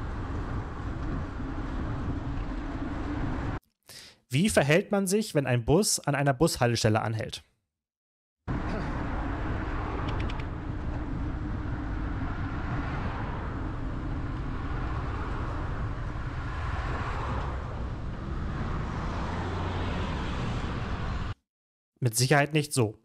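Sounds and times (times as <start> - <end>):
wind rumble on microphone: 0.0 - 3.6, 8.5 - 21.4
passing car traffic: 8.5 - 21.4.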